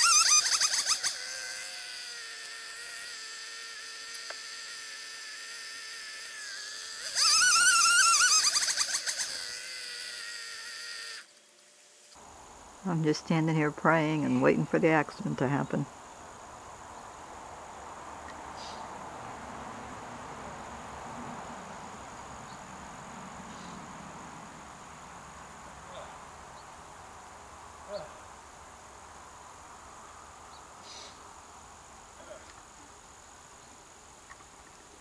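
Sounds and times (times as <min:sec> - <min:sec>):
high-pitched insect trilling: 0:00.0 - 0:12.2
soft hiss: 0:00.0 - 0:35.0.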